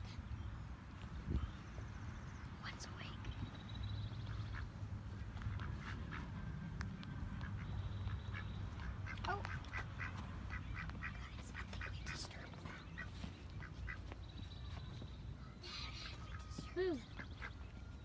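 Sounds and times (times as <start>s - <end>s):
steady low rumble: 0.0s - 18.0s
ducks quacking: 4.1s - 14.3s, 15.6s - 17.7s.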